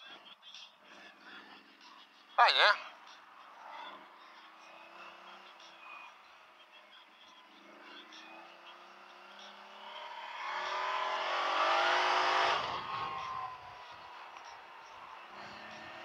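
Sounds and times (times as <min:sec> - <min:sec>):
quad engine accelerating: 0:03.6 - 0:06.1, 0:07.4 - 0:16.0.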